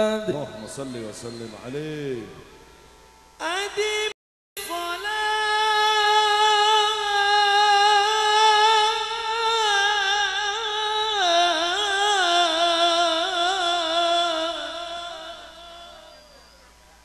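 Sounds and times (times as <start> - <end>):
man singing into a microphone: 0.0 - 2.4, 3.4 - 16.6.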